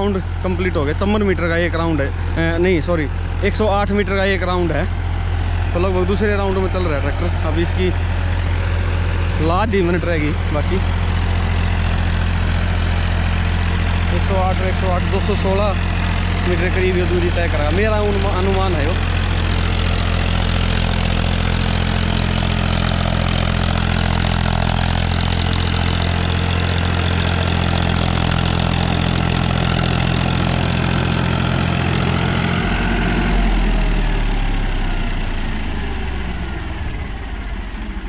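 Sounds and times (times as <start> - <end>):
tractor diesel engine running: 0.0 - 38.0
rotavator churning soil: 10.4 - 33.3.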